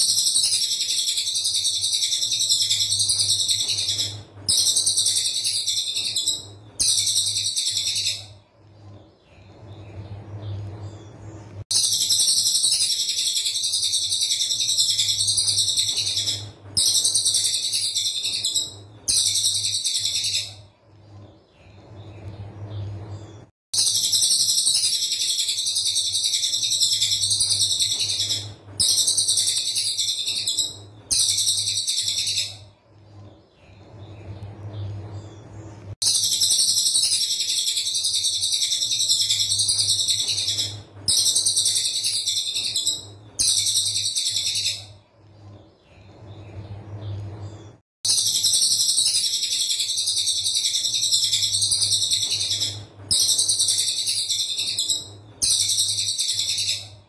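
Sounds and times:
steady low hum: 0.0s - 55.8s.

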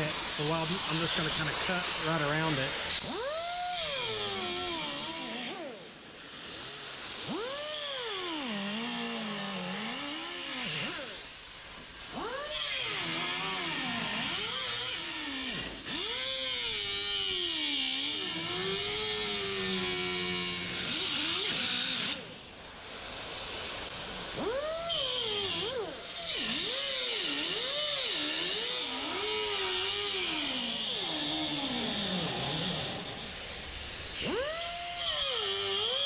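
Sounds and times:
steady hiss: 0.0s - 5.4s.

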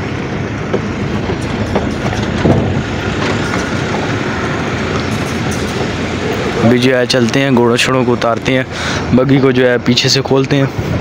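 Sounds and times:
truck engine and road rumble: 0.0s - 11.0s
knocks and rattles: 0.4s - 6.6s.

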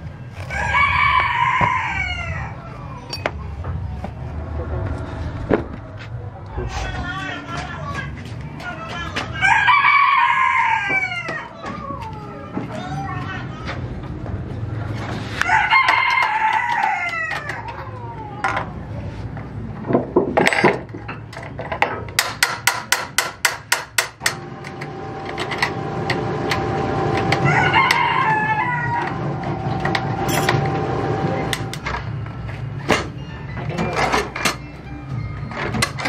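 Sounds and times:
rooster crowing: 0.5s - 2.8s, 9.4s - 11.6s, 15.4s - 18.2s, 26.6s - 31.7s.

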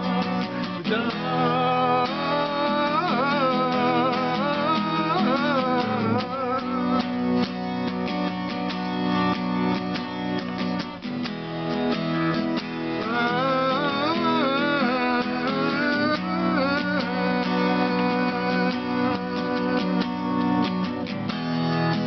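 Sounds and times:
acoustic guitar strumming: 0.0s - 22.0s
man's wordless vocal: 0.8s - 7.3s, 13.0s - 20.6s.

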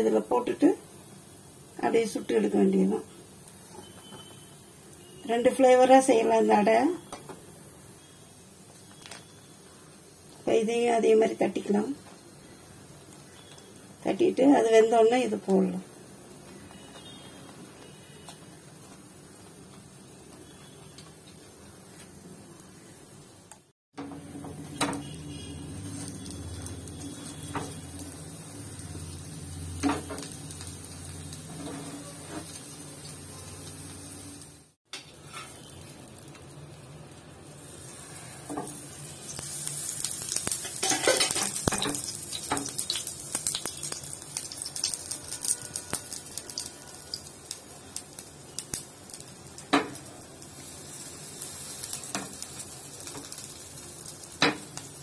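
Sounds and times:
batter sizzling in oil: 0.0s - 55.0s.

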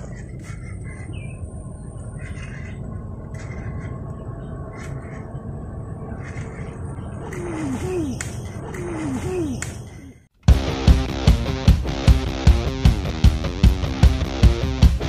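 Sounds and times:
bird chirps: 0.0s - 10.3s
background music: 10.5s - 15.0s.

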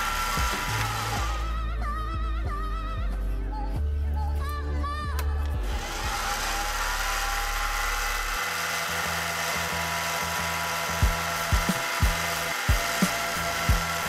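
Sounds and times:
lathe motor whine: 0.0s - 1.6s, 5.7s - 14.0s.

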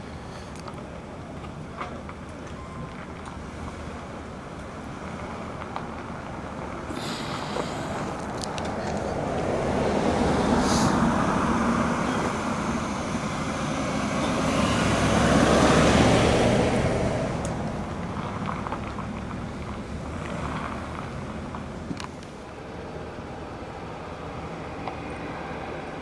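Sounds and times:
vehicle driving past: 7.2s - 21.8s.

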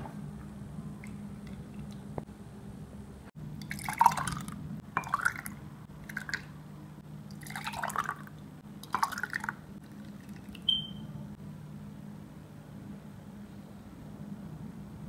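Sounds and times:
liquid splashing into glasses: 3.6s - 6.5s, 7.3s - 10.7s.

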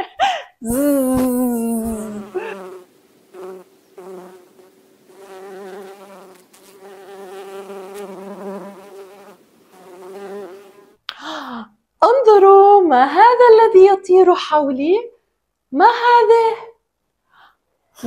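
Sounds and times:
imitation bee buzzing: 0.6s - 11.0s.

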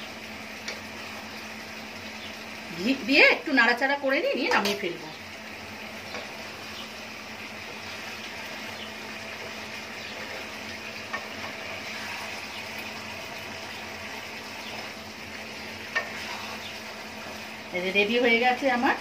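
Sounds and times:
gravy simmering and sizzling: 0.0s - 19.0s
spatula knocking pan: 4.4s - 5.0s
spatula stirring: 13.2s - 17.6s.

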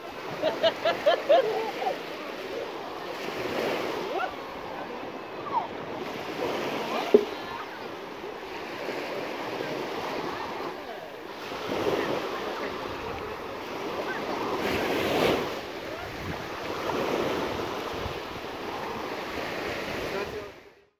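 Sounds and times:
sea waves washing onto shore: 0.0s - 20.7s
wind buffeting microphone: 15.1s - 19.0s.

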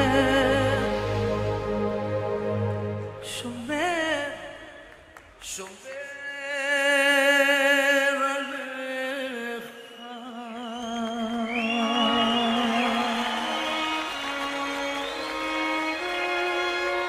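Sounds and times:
man singing ballad with vibrato: 0.0s - 1.4s, 3.2s - 13.7s.

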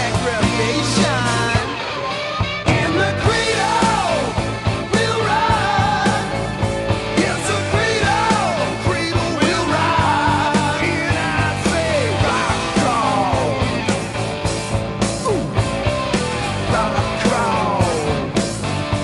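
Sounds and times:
person singing: 0.0s - 6.5s, 7.2s - 13.8s, 16.7s - 18.4s
rock music: 0.0s - 19.0s.

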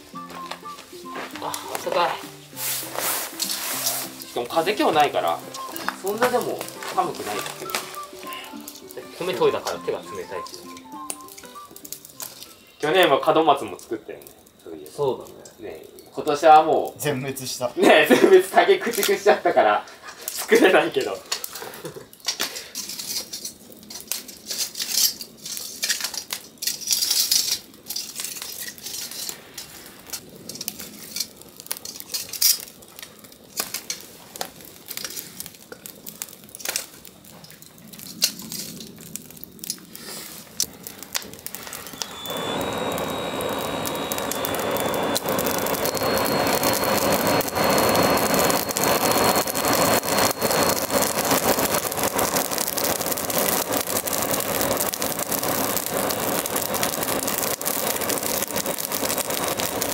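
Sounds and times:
wood fire crackling: 0.0s - 59.9s
handheld blower whine and rush: 41.5s - 59.9s.

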